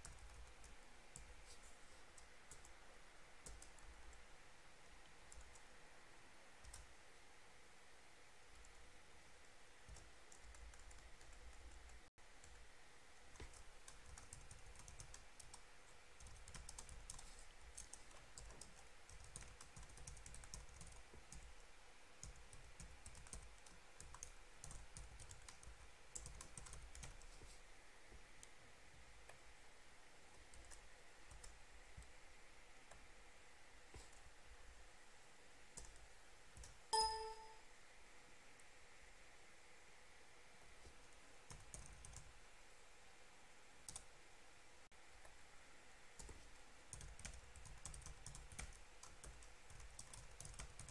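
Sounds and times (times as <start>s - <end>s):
keyboard typing: 0.0s - 1.6s, 3.4s - 4.2s, 6.6s - 6.9s, 9.9s - 12.6s, 13.3s - 21.6s, 22.2s - 27.5s, 35.8s - 37.6s, 41.5s - 42.3s, 43.9s - 44.1s, 46.2s - 50.9s.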